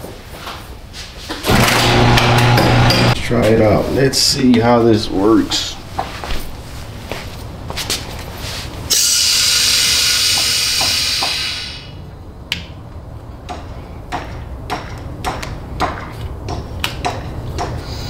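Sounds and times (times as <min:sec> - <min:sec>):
compressed air hissing from nozzle: 0:08.4 - 0:12.0.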